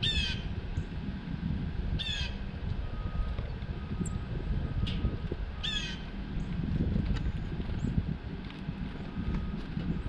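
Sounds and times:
blue jay harsh call: 0:00.0 - 0:00.5, 0:02.0 - 0:02.4, 0:05.6 - 0:06.2
low background rumble: 0:00.0 - 0:10.0.

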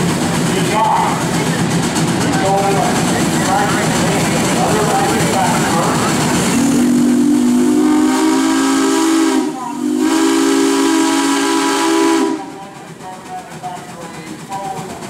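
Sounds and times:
steam hissing: 0:00.0 - 0:15.0
steam whistle blasts: 0:06.7 - 0:12.8.

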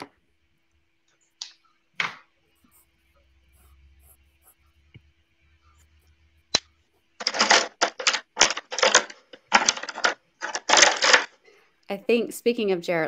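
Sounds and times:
drawing tool scratching paper: 0:02.5 - 0:07.2.

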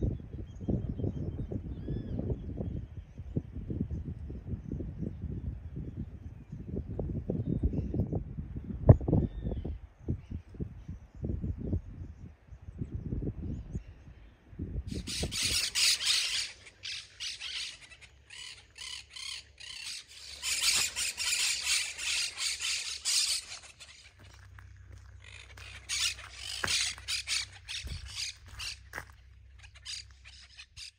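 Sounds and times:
birds calling harshly: 0:14.9 - 0:30.9.

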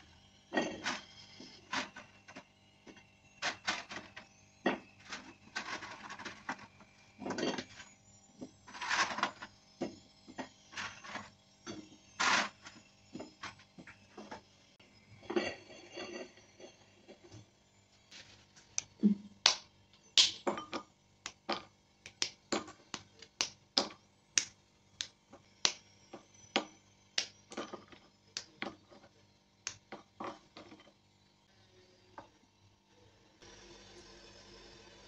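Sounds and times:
chocolate bar snapping: 0:20.2 - 0:20.5.

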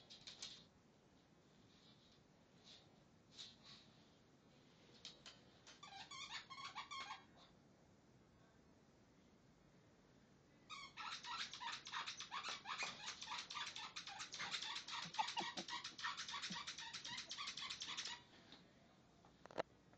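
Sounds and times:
squeaky pet toy squeaking: 0:05.8 - 0:07.3, 0:10.7 - 0:18.2.

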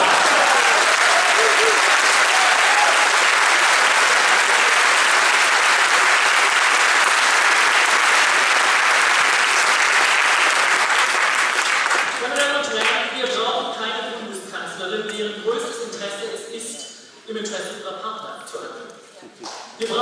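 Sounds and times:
audience applause: 0:00.0 - 0:12.9.

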